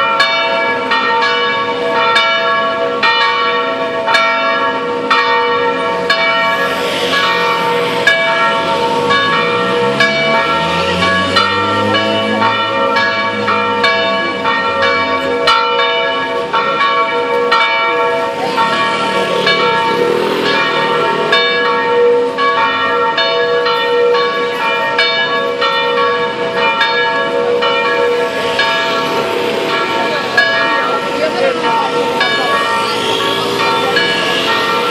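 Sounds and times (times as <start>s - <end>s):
church bells ringing: 0.0s - 34.9s.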